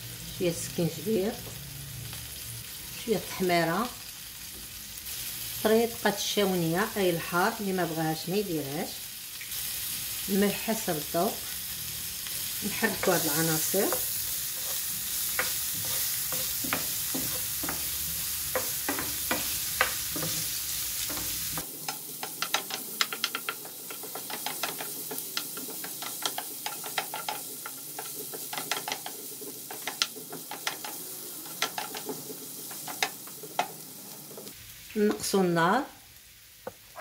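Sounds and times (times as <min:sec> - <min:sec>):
vegetables sizzling in oil: 0:00.0 - 0:37.0
spoon clicking against pan: 0:21.8 - 0:31.0.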